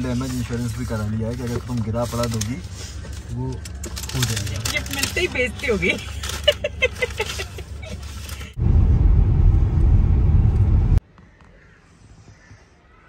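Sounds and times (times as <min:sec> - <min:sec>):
voices: 0:00.0 - 0:08.6
moving car rumble: 0:00.0 - 0:11.0.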